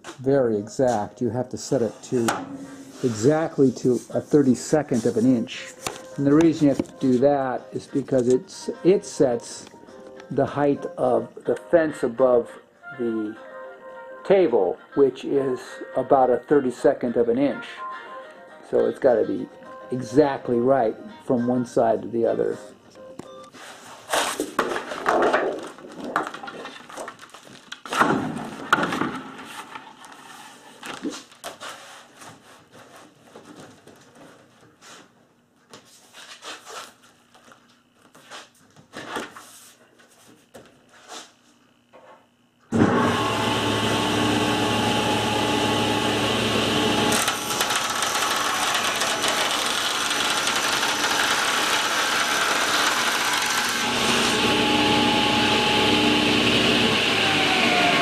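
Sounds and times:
plastic sheets handled and stacked: 1.7 - 8.4, 23.7 - 40.8
table saw whining: 42.7 - 58.0.

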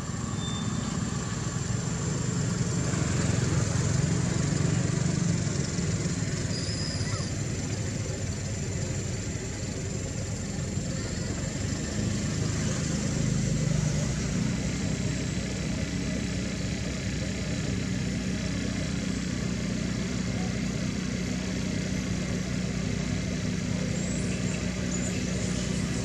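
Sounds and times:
engine idling: 0.0 - 26.0.

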